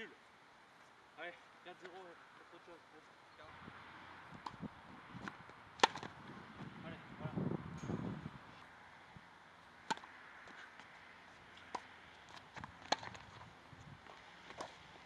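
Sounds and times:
tennis ball struck by rackets: 4.3 - 6.2, 9.8 - 10.9, 11.5 - 13.4, 14.1 - 15.0
ball bouncing on hard court: 5.2 - 6.2.

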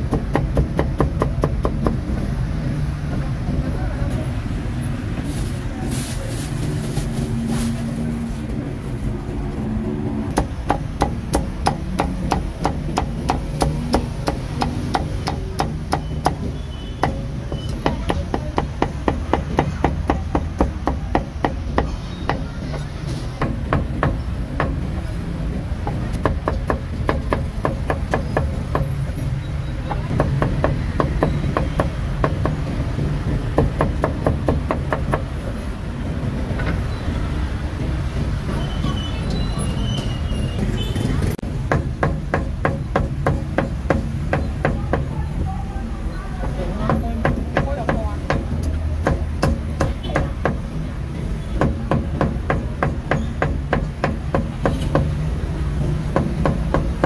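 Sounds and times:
street noise hum: 0.0 - 57.0
cleaver chopping on wooden block: 10.3 - 22.4, 46.8 - 50.7.

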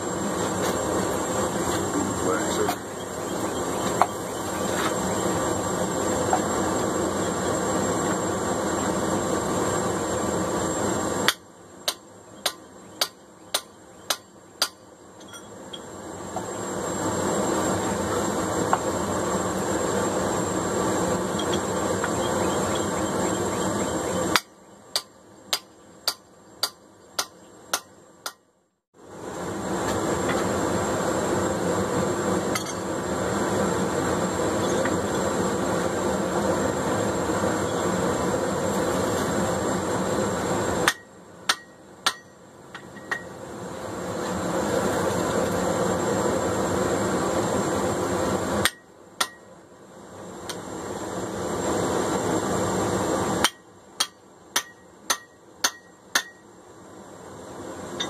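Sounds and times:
gas forge burner roaring: 0.0 - 28.4, 29.0 - 58.0
hammer blows on hot steel: 11.2 - 16.6, 21.2 - 28.5, 40.7 - 43.4, 48.6 - 49.5, 53.3 - 56.5.

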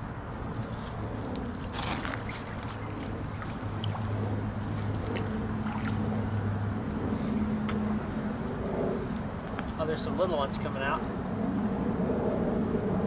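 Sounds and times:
low motor hum: 0.0 - 9.7
water splash and sloshing: 0.4 - 7.8.

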